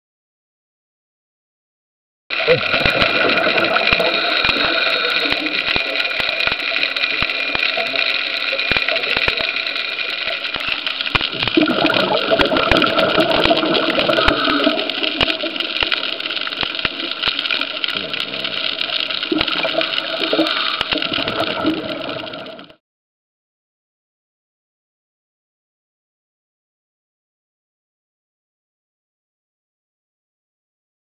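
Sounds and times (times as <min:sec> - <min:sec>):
sharp clicks and crackles: 0:02.3 - 0:22.8
underwater drone: 0:02.3 - 0:22.8.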